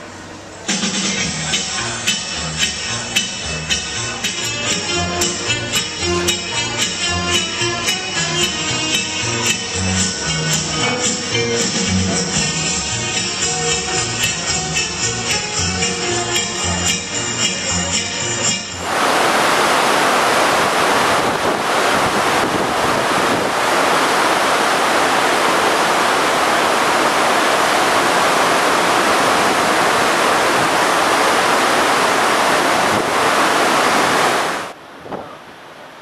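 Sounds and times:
white water rushing: 18.5s - 36.0s
wind on microphone: 18.8s - 35.4s.

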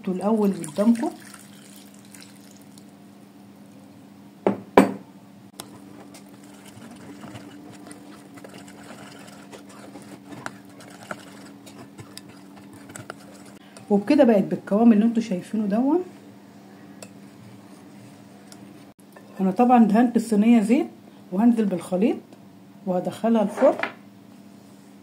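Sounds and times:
liquid pouring: 0.5s - 2.9s
whisk scraping glass bowl: 5.6s - 13.6s.

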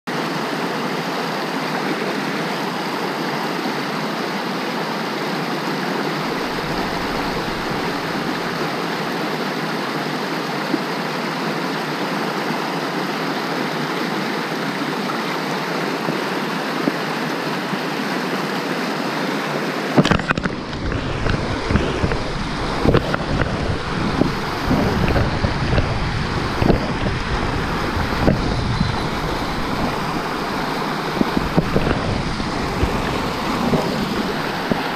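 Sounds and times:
stream rushing over boulders: 0.1s - 34.9s
low rumbling and knocks: 20.1s - 34.9s.

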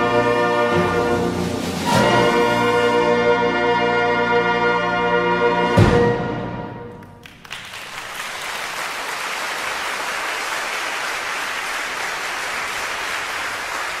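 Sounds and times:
audience applause: 7.1s - 14.0s.

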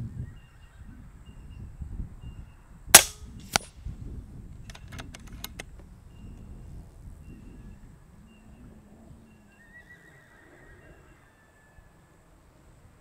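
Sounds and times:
air rifle shot: 3.0s - 3.7s
pellet hitting target: 3.0s - 3.7s.

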